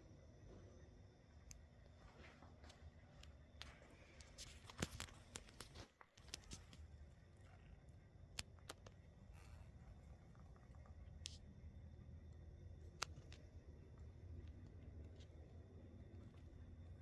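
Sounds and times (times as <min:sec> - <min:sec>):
faint clicks and rustles: 0:01.3 - 0:17.0.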